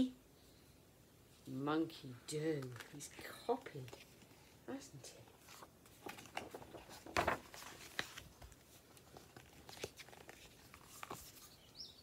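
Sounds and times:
book pages turning: 2.4s - 4.6s, 5.2s - 11.8s.

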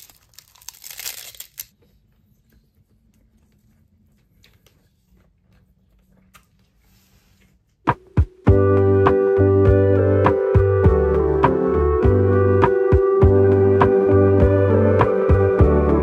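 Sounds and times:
seaweed crackling as bitten: 0.0s - 1.7s
music with sustained keyboard chords: 8.4s - 16.0s.

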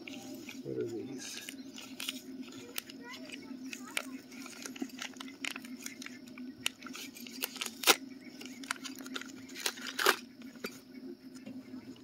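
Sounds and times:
plastic bag crinkling and tearing: 1.3s - 10.2s.

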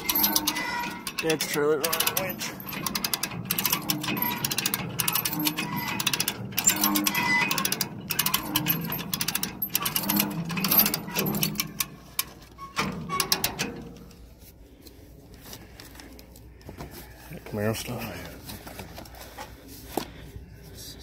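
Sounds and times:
winch clattering with a whine: 0.0s - 14.1s.

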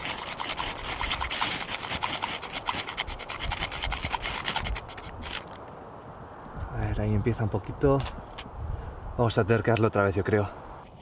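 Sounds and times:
knife scraping ferro rod: 0.0s - 5.6s.

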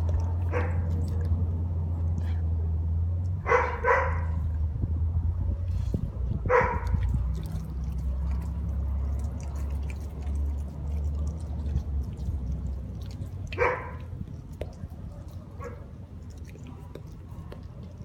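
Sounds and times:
dog licking and smacking: 0.0s - 4.6s, 5.5s - 18.0s
dog barking: 0.4s - 1.0s, 3.4s - 4.4s, 6.4s - 7.1s, 13.5s - 14.1s, 15.2s - 15.9s.

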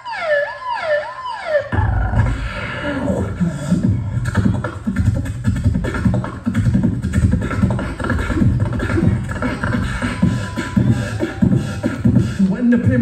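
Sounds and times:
man beatboxing into a microphone: 1.7s - 13.0s.

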